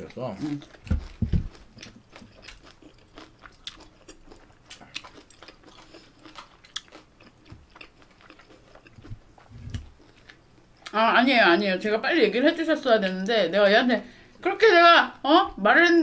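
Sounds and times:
close chewing and crunching: 0:00.0 - 0:11.0.

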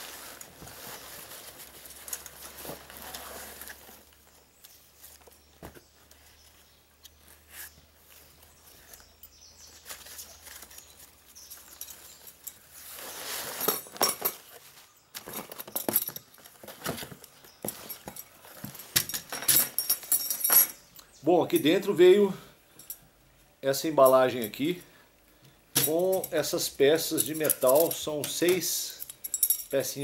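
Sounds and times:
light metallic clinks: 0:10.7 - 0:12.8, 0:17.2 - 0:21.8, 0:22.8 - 0:23.1, 0:25.8 - 0:30.0.

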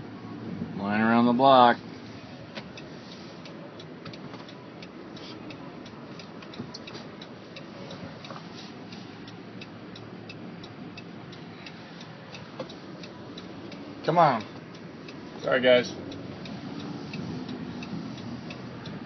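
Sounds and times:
car rumble: 0:00.0 - 0:19.0
turn signal ticking: 0:00.0 - 0:19.0.

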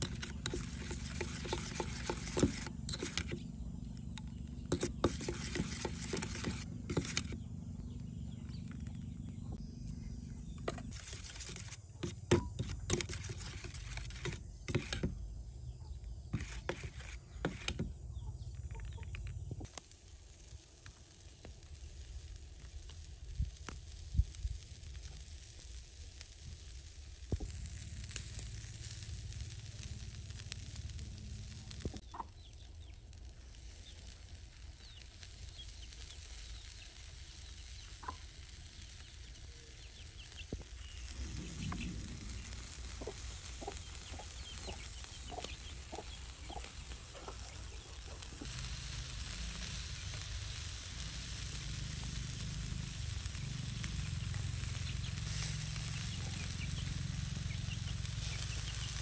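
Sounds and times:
ribs sizzling: 0:19.6 - 0:59.0
chicken clucking: 0:43.0 - 0:48.4.

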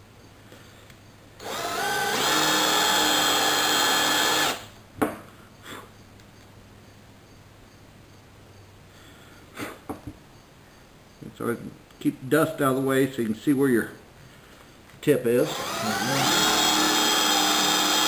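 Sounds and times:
power drill boring wood: 0:01.4 - 0:04.7, 0:15.4 - 0:18.0.

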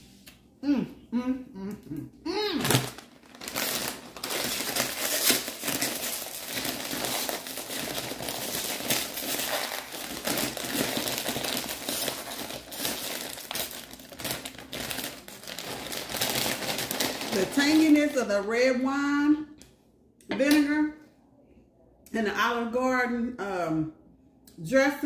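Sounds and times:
foil chip bag crinkling: 0:02.6 - 0:18.2.

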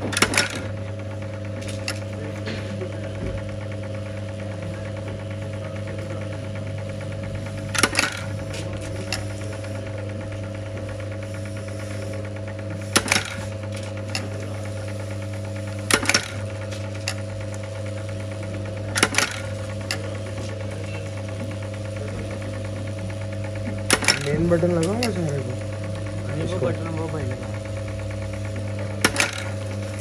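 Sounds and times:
press ram striking: 0:07.5 - 0:09.3, 0:15.8 - 0:17.2, 0:23.8 - 0:24.6, 0:29.0 - 0:29.6.

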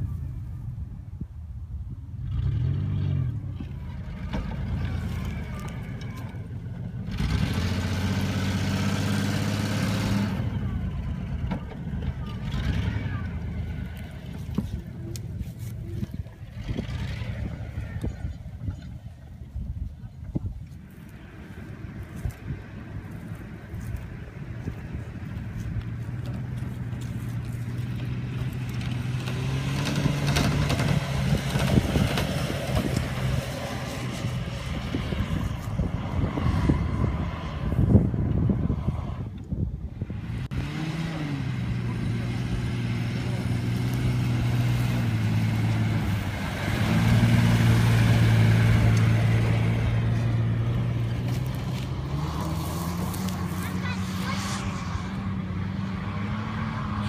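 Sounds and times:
car engine revving: 0:02.2 - 0:15.2, 0:24.6 - 0:39.3, 0:40.1 - 0:57.0
tyres churning sand: 0:40.2 - 0:57.0.

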